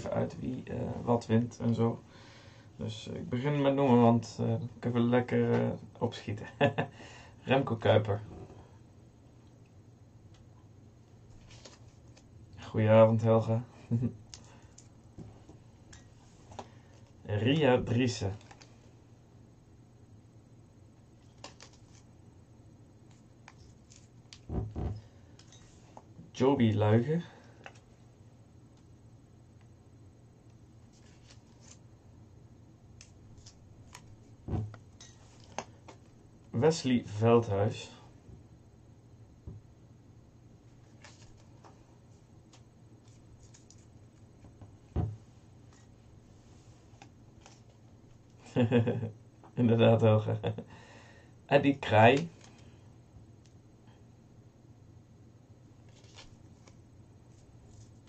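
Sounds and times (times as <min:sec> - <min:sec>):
paper folding rustle: 0:11.3 - 0:12.3, 0:21.2 - 0:22.1, 0:23.1 - 0:24.5, 0:30.9 - 0:31.8, 0:33.0 - 0:34.3, 0:40.7 - 0:41.9, 0:42.5 - 0:44.2, 0:55.8 - 0:58.0.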